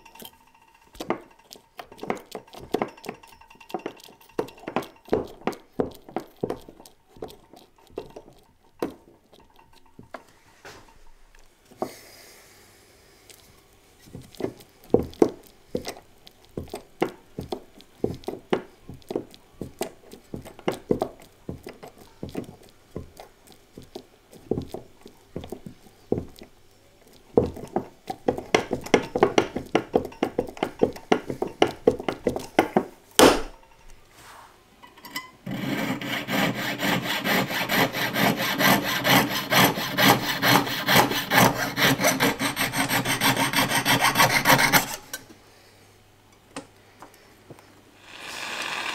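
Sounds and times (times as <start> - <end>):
metal scraping strokes: 35.4 - 45.2
saw rasping through metal: 35.4 - 45.2, 48.0 - 48.9.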